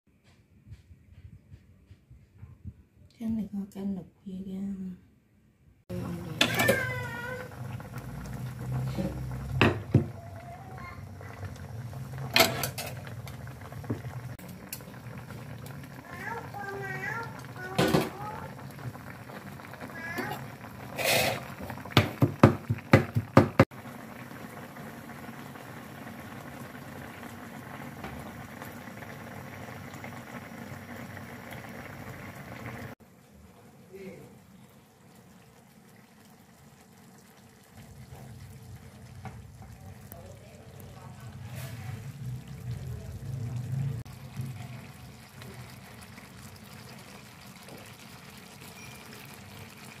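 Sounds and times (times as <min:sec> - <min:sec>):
sauce bubbling: 0:05.9 - 0:33.8, 0:34.4 - 0:50.0
sauce popping: 0:06.3 - 0:33.0.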